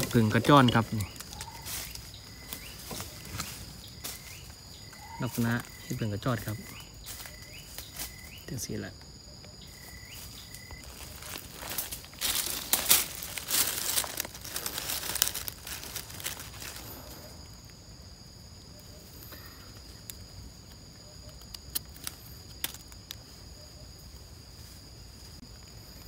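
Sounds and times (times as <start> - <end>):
dry leaves rustling: 0.0 - 8.8, 9.7 - 17.5
insect drone: 0.0 - 26.0.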